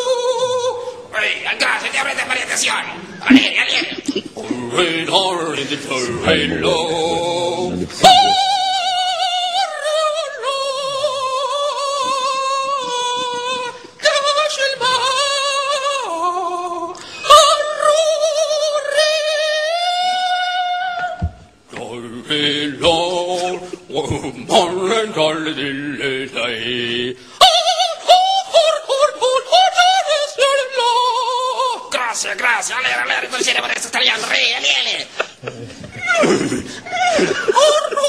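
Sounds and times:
man singing unaccompanied: 0:04.4 - 0:21.2, 0:21.8 - 0:31.9.

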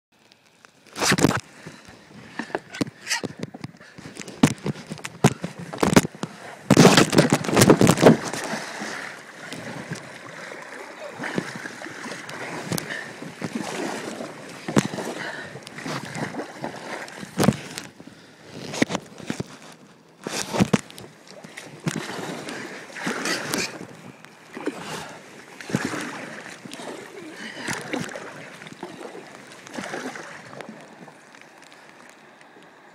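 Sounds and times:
moving water: 0:00.2 - 0:32.9
kayak hull scraping on bank: 0:00.9 - 0:31.3
paddle knocking boat: 0:01.5 - 0:19.5, 0:20.3 - 0:32.6
kayak splashing into river: 0:04.3 - 0:17.9, 0:20.4 - 0:31.6.

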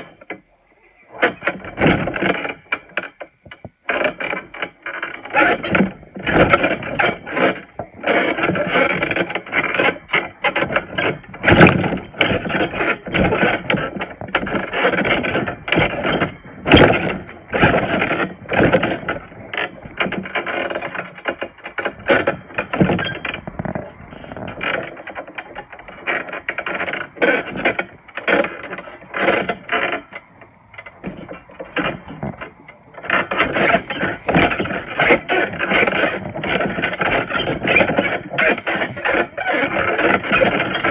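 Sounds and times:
trampoline springs creaking: 0:00.0 - 0:40.9.

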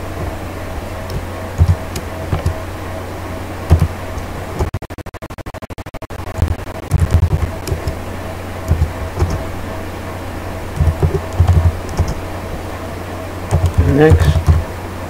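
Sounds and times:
steady low hum: 0:00.0 - 0:15.0
keyboard typing: 0:01.0 - 0:02.6, 0:03.7 - 0:03.9, 0:06.4 - 0:08.0, 0:08.7 - 0:09.5, 0:10.8 - 0:12.2, 0:13.5 - 0:14.6.

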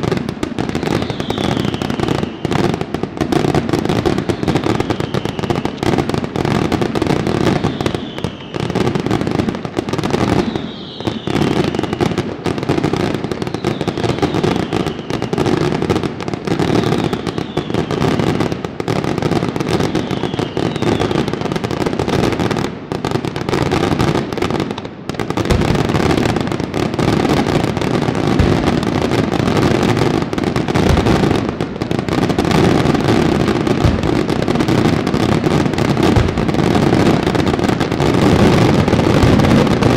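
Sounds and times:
falling firework whistle: 0:00.0 - 0:22.5
fireworks bangs and crackling: 0:00.0 - 0:39.9.

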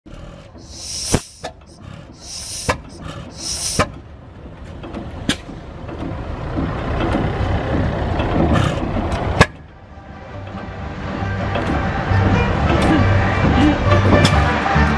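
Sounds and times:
hiss bursts: 0:00.6 - 0:01.6, 0:02.2 - 0:03.9
low rumble: 0:01.6 - 0:14.9.

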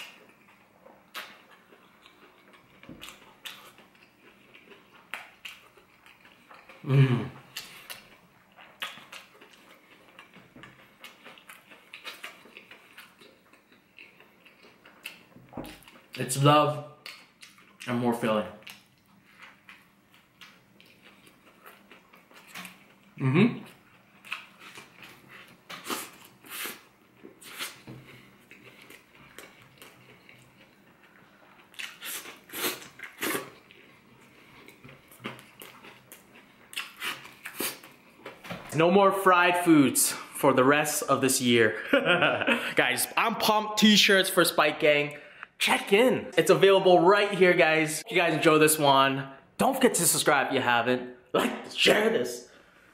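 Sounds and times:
close-up chewing food: 0:00.0 - 0:16.2, 0:23.8 - 0:38.4.

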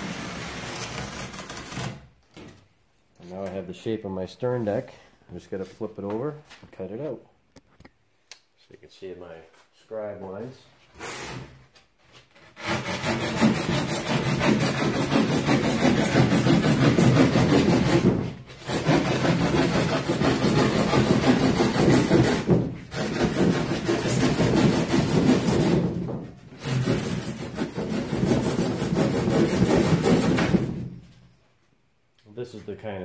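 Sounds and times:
hand saw cutting foam board: 0:00.0 - 0:02.1, 0:12.2 - 0:30.9.

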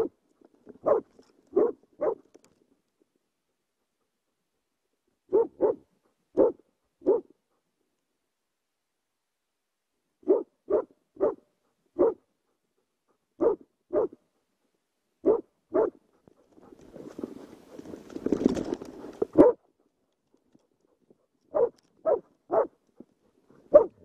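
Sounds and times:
dog barking: 0:00.8 - 0:02.2, 0:05.3 - 0:07.3, 0:10.2 - 0:11.4, 0:12.0 - 0:12.3, 0:13.4 - 0:14.2, 0:15.2 - 0:16.0, 0:19.4 - 0:19.7, 0:21.5 - 0:22.8, 0:23.7 - 0:24.0.

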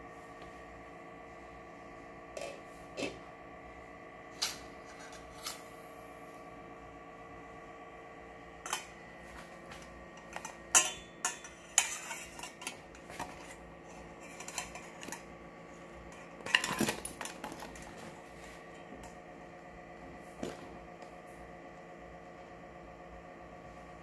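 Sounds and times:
metal utensils clinking on pot: 0:10.2 - 0:13.5, 0:14.2 - 0:15.2
scraping knocks in pot: 0:10.2 - 0:15.2.

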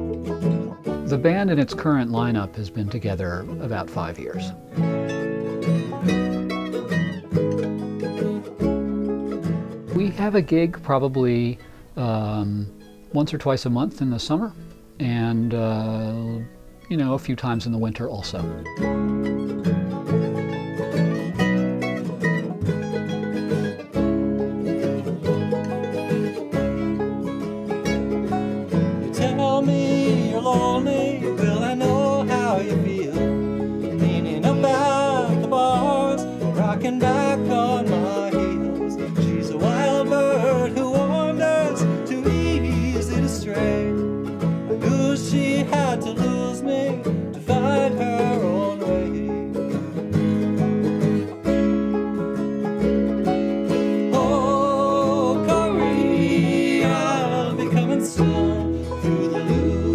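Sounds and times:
bluegrass band playing: 0:00.0 - 0:59.9
man singing: 0:15.0 - 0:18.1, 0:29.0 - 0:44.1, 0:44.7 - 0:50.1, 0:54.0 - 0:59.9.

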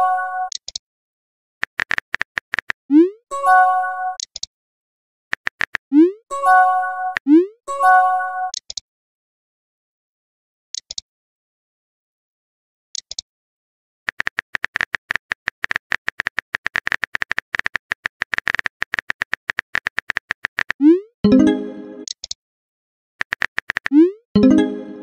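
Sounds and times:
phone keyboard typing clicks: 0:00.5 - 0:00.8, 0:01.6 - 0:02.8, 0:04.2 - 0:04.5, 0:05.3 - 0:05.9, 0:08.5 - 0:08.8, 0:13.0 - 0:13.2, 0:14.1 - 0:20.8, 0:22.0 - 0:22.4, 0:23.2 - 0:24.0.

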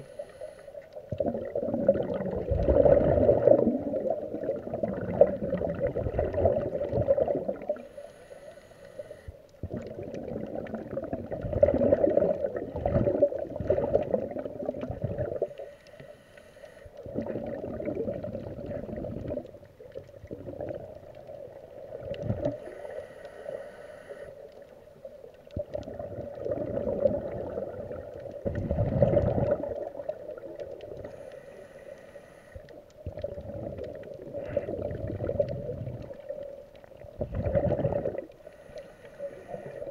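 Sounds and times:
regulator hissing inhale: 0:00.0 - 0:00.9, 0:07.8 - 0:09.4, 0:15.4 - 0:17.0, 0:22.6 - 0:24.6, 0:31.0 - 0:32.8, 0:38.4 - 0:39.9
bubbling exhalation underwater: 0:01.1 - 0:07.8, 0:09.6 - 0:15.5, 0:17.0 - 0:22.6, 0:25.5 - 0:31.0, 0:33.0 - 0:36.4, 0:37.1 - 0:38.3.

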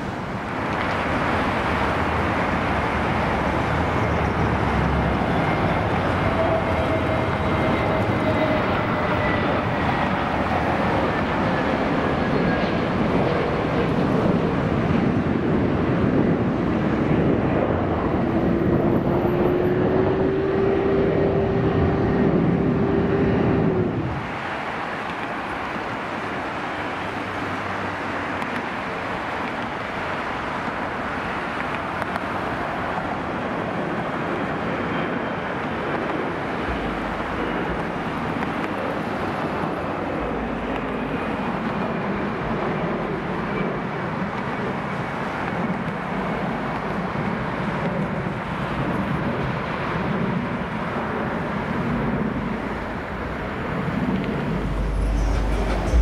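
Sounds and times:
jet engines roaring at takeoff: 0:00.0 - 0:56.0
high whine falling in pitch: 0:53.9 - 0:56.0.

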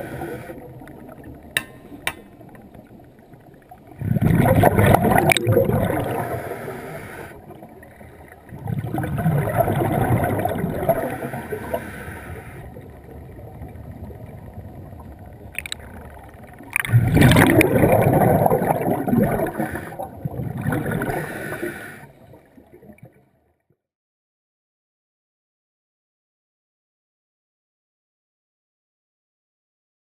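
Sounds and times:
underwater gurgling and rumbling: 0:00.0 - 0:23.6
underwater knocks: 0:01.5 - 0:02.8.

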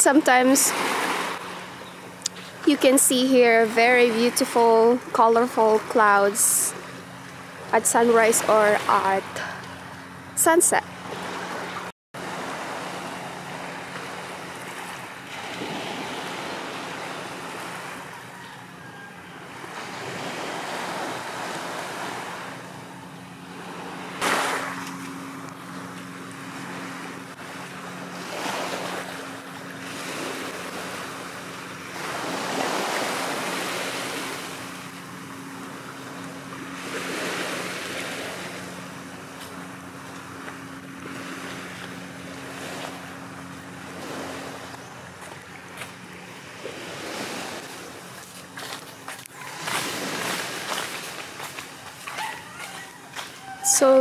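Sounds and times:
small waves on pebbly shore: 0:00.0 - 0:01.7, 0:11.0 - 0:18.0, 0:26.5 - 0:34.9, 0:43.8 - 0:44.7, 0:46.4 - 0:52.6
steady low hum: 0:00.0 - 0:54.0.

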